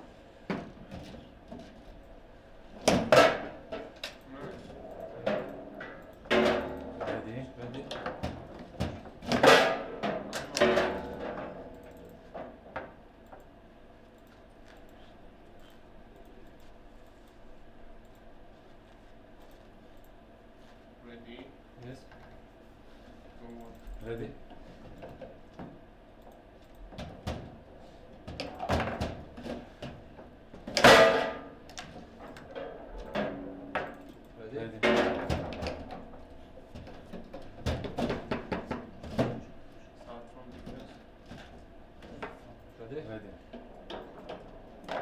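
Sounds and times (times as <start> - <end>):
foosball ball cracking against players: 2.8 - 4.0, 5.3 - 13.0, 28.2 - 34.0, 34.8 - 39.5, 43.6 - 45.0
foosball rods knocking: 4.9 - 13.0, 28.2 - 34.2, 34.8 - 39.6, 43.5 - 45.0.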